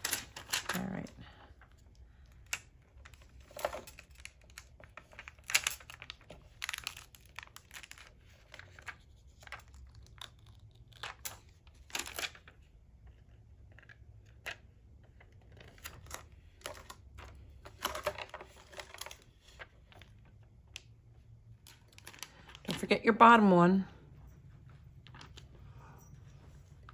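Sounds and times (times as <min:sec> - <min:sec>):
vinyl and tape crinkling: 0:00.0 - 0:12.6, 0:15.3 - 0:20.9, 0:21.6 - 0:23.0.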